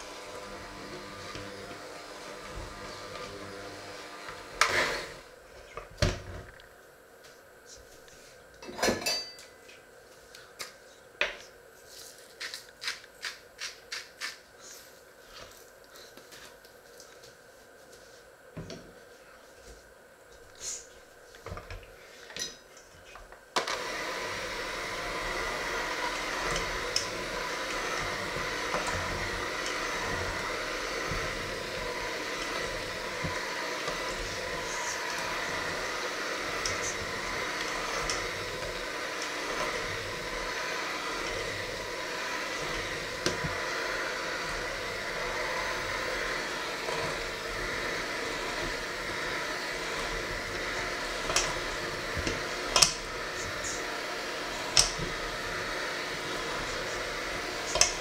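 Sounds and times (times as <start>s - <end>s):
electric hand mixer whining: 0.0s - 5.4s, 23.5s - 58.0s.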